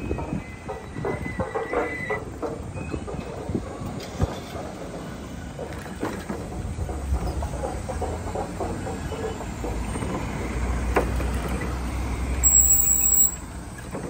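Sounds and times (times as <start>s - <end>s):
high squeal: 12.4s - 13.5s.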